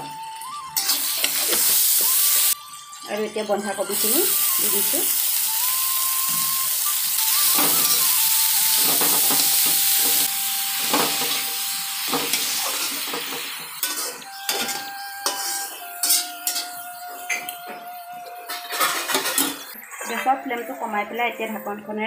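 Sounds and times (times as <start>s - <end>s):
cabbage sizzling in hot oil: 0.1s - 17.3s
metal spatula scraping a pan: 0.8s - 2.6s, 12.1s - 17.4s, 18.5s - 20.4s.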